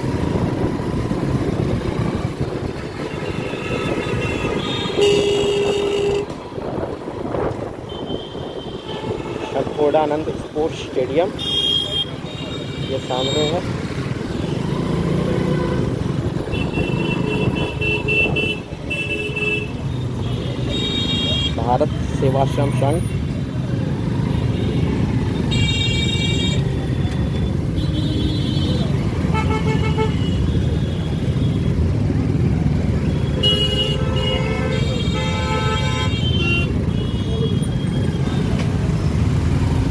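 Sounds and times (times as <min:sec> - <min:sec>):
street traffic engines: 0:00.0 - 0:39.9
vehicle horn honking: 0:03.3 - 0:06.3, 0:33.3 - 0:37.6.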